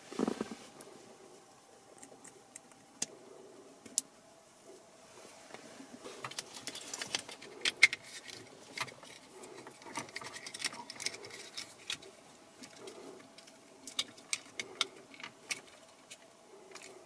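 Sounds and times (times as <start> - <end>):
cables rustling: 4.8 - 17.0.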